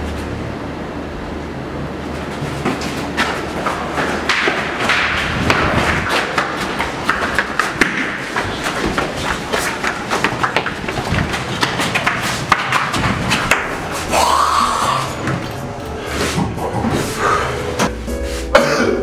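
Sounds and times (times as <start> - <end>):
running footsteps on hard floor: 2.2 - 14.2.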